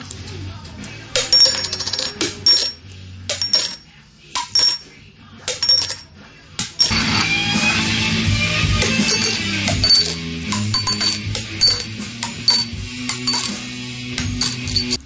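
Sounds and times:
music: 0.0 - 15.0
metal coin bouncing and clinking: 1.2 - 4.9, 5.5 - 7.2, 8.8 - 15.0.

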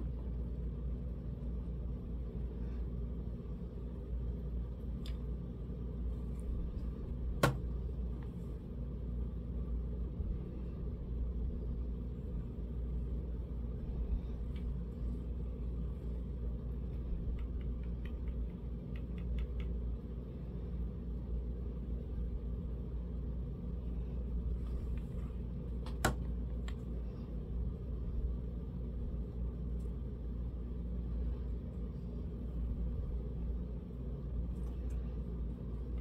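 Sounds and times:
low rumble: 0.0 - 36.0.

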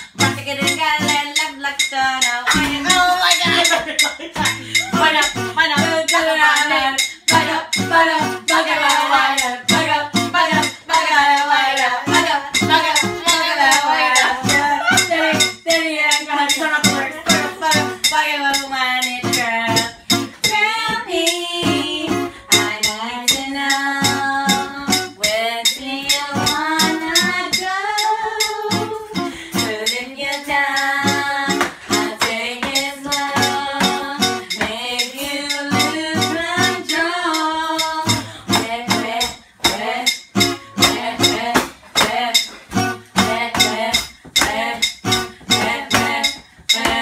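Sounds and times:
acoustic guitar strumming: 0.0 - 47.0
women singing: 0.0 - 47.0.

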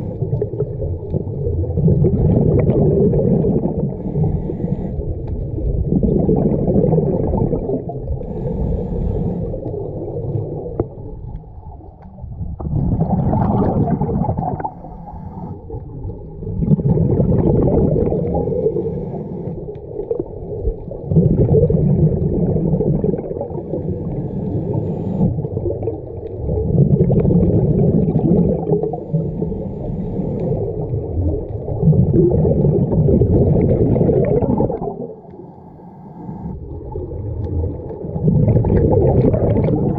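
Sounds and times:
gurgle of exhaled bubbles: 0.0 - 35.4, 36.4 - 39.9
diver breathing through regulator: 3.8 - 5.4, 8.0 - 10.1, 14.6 - 15.7, 17.9 - 19.9, 23.4 - 25.5, 28.5 - 31.0, 35.1 - 36.7.

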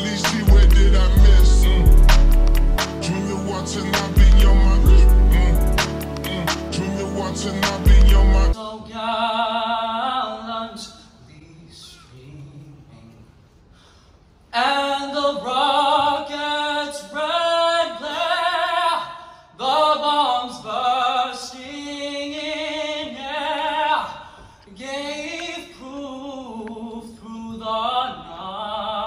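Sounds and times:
person singing with vibrato: 0.0 - 13.0
singer breathing: 13.7 - 14.3, 24.2 - 24.7.

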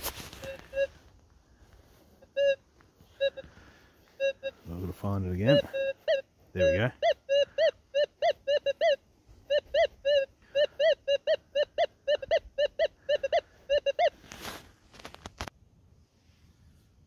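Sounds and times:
metal detector short beeps: 0.2 - 1.0, 3.2 - 3.4, 4.2 - 7.7.

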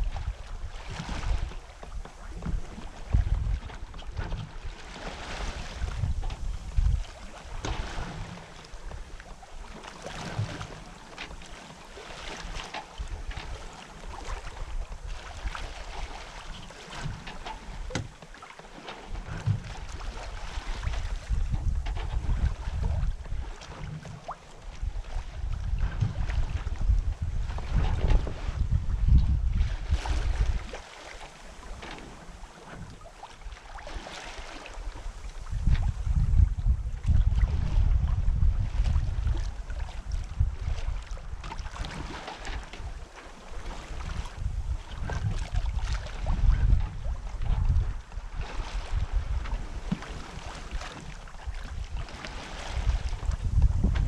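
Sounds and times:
wind buffeting microphone: 0.0 - 10.8, 19.2 - 30.8, 34.4 - 43.0, 43.6 - 54.0
water splashing along hull: 0.0 - 54.0.

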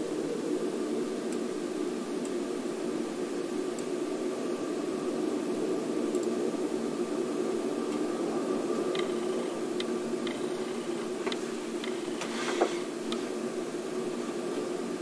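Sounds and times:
droning hum with hiss: 0.0 - 15.0
faint ticks: 1.2 - 1.5, 2.2 - 2.4, 3.6 - 4.0, 6.0 - 6.4, 7.9 - 8.1, 8.7 - 13.4.

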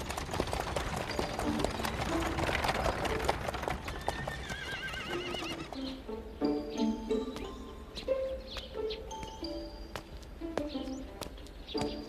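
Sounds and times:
horse hooves clip-clopping on pavement: 0.0 - 7.8, 8.5 - 12.0
horse whinnying: 3.1 - 6.0
light background music: 5.0 - 12.0.

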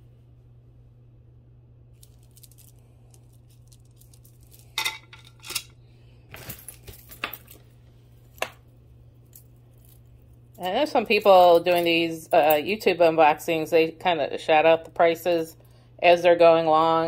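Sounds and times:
beads and chain clinking: 2.0 - 5.7, 6.3 - 8.5, 9.2 - 12.8.

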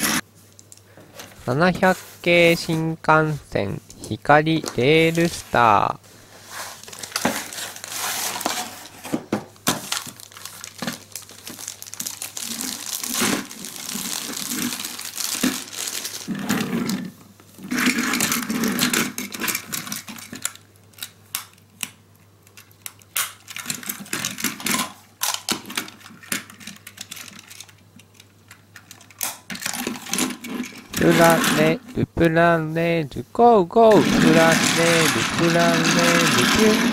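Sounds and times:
plastic packaging crinkling: 6.5 - 9.0, 9.6 - 16.8, 33.9 - 36.9
plastic toy cars clicking on table: 34.0 - 36.9.

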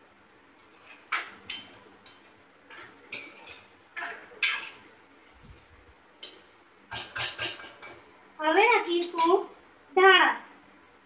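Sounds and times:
metal spoon scraping a pot: 0.6 - 4.9, 6.2 - 8.1.

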